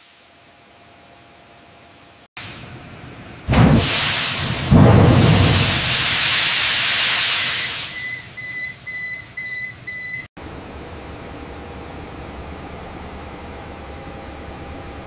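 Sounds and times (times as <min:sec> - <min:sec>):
gas discharging with loud hiss: 0:03.5 - 0:08.6
high electronic alarm beeps: 0:07.4 - 0:10.3.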